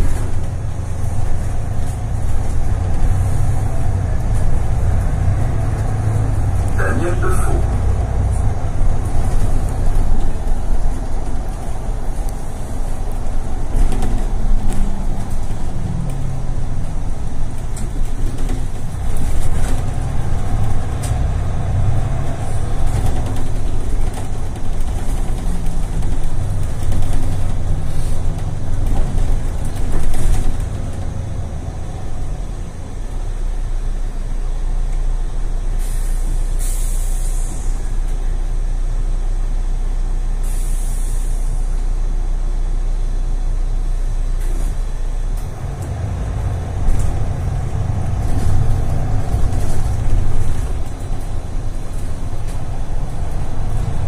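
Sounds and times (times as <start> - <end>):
bus engine droning: 0.0 - 54.0
air brakes hissing: 27.8 - 28.4, 35.7 - 38.0, 40.4 - 41.7.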